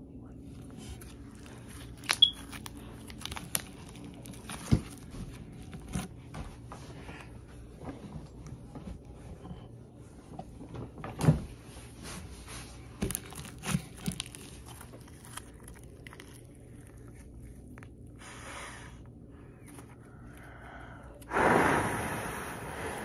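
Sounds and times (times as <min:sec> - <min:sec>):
short breathy rush: 0:20.5 - 0:23.0.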